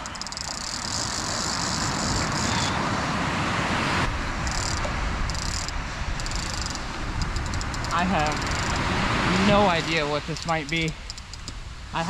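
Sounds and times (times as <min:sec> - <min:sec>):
fishing reel clicking: 0:00.0 - 0:02.6, 0:04.4 - 0:08.9, 0:09.9 - 0:11.6
surf roaring: 0:00.0 - 0:12.0
wind: 0:00.0 - 0:12.0.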